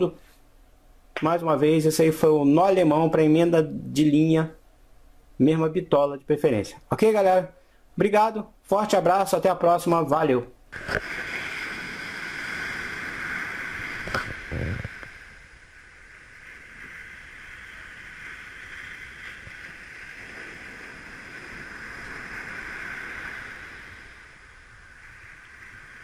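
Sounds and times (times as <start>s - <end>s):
wind: 0.0s - 26.0s
breaking waves hissing: 10.7s - 26.0s.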